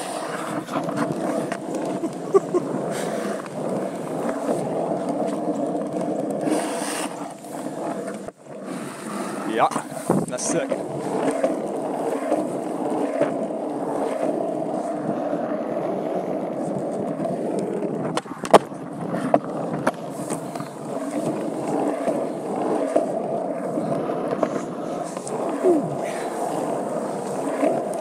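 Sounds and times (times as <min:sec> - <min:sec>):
skateboard clacks: 0:00.0 - 0:28.0
skateboard wheels rolling on asphalt: 0:00.0 - 0:28.0.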